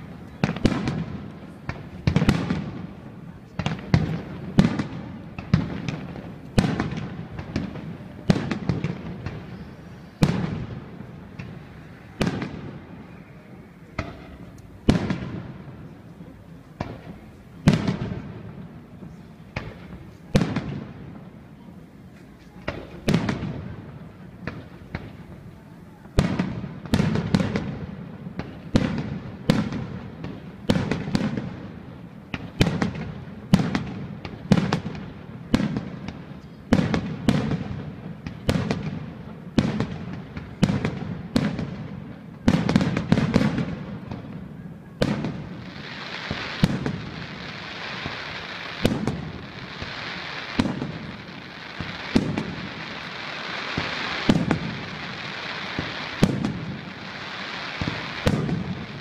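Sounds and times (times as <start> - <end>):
steady hiss: 43.8 - 59.0
firework shells bursting: 45.1 - 59.0.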